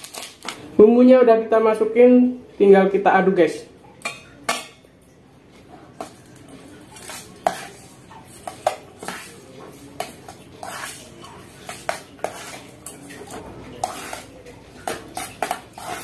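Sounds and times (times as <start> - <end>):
utensil scraping a pot: 6.0 - 16.0.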